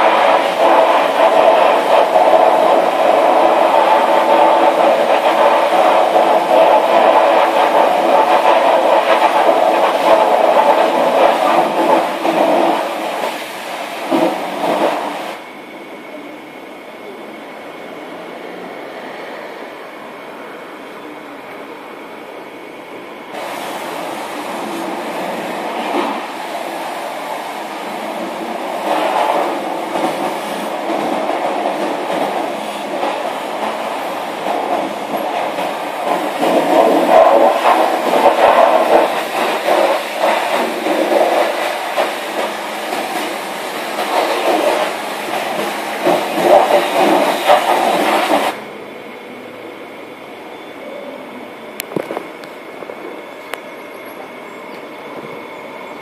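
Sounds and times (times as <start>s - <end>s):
pressure washer spraying water: 0.0s - 15.4s, 23.3s - 48.6s.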